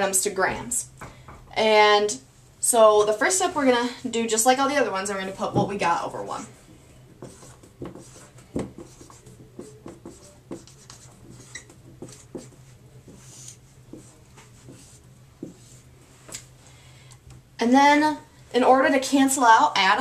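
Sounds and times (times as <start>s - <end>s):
marker scratching on whiteboard: 7.0s - 16.2s.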